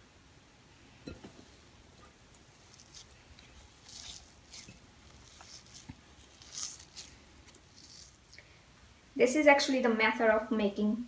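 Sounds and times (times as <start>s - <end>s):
hands rubbing crumbly mixture: 2.2s - 8.5s.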